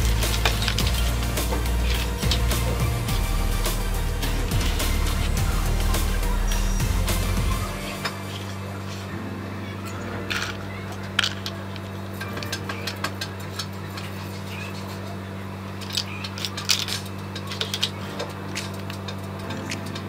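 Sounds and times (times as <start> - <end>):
steady low hum: 0.0 - 20.0
plastic track pieces clicking: 15.8 - 20.0.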